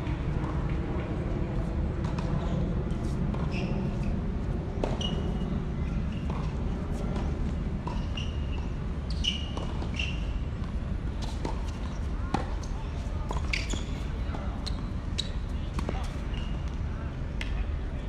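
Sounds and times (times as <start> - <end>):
shoe squeaks: 3.4 - 4.2, 4.8 - 6.5, 7.9 - 10.5, 13.2 - 15.5, 16.2 - 16.6
tennis ball bouncing: 9.3 - 12.7.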